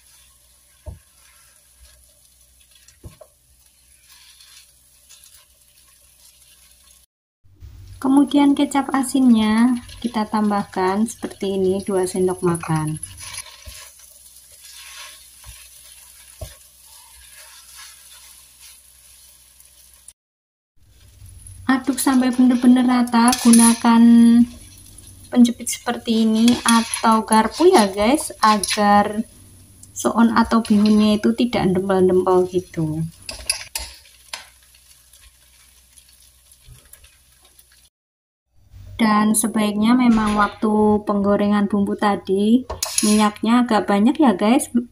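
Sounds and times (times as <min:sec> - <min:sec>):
spatula scraping a wok: 0:00.0 - 0:03.0, 0:03.6 - 0:07.0, 0:09.6 - 0:20.0, 0:21.8 - 0:25.2, 0:25.9 - 0:29.3, 0:30.3 - 0:31.5, 0:42.7 - 0:43.4
vegetables sizzling in a wok: 0:00.0 - 0:20.2, 0:20.8 - 0:37.9, 0:42.5 - 0:44.3.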